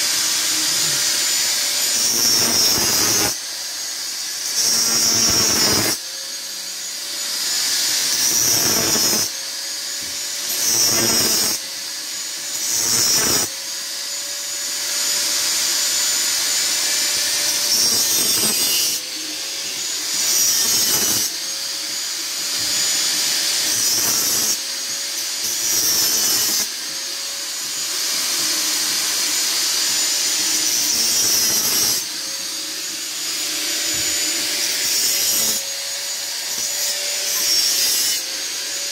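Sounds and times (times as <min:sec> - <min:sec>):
angle grinder cutting metal: 0:00.0 - 0:38.9.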